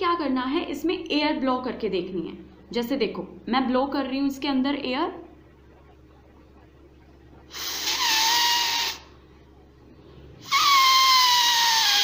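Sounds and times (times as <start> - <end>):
paper reed buzzing with breath: 7.5 - 9.2, 10.4 - 12.0.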